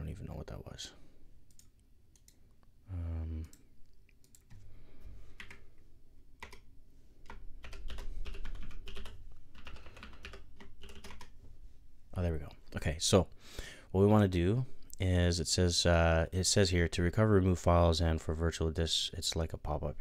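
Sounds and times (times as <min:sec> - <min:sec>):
computer keyboard clicks: 0:06.4 - 0:06.6, 0:07.2 - 0:11.4.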